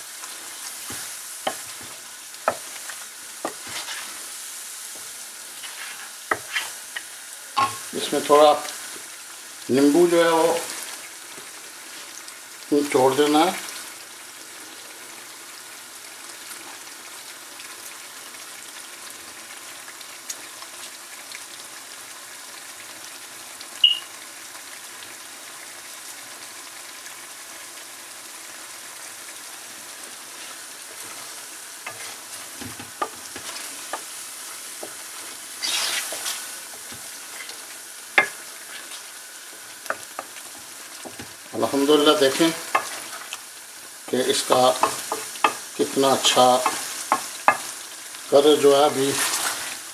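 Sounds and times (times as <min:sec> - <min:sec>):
meat sizzling in a pan: 0:00.0 - 0:49.9
spatula stirring and scraping: 0:00.1 - 0:08.2, 0:29.9 - 0:43.5, 0:44.1 - 0:47.9, 0:49.0 - 0:49.8
spatula knocking against pan: 0:42.7 - 0:43.0, 0:44.8 - 0:47.7.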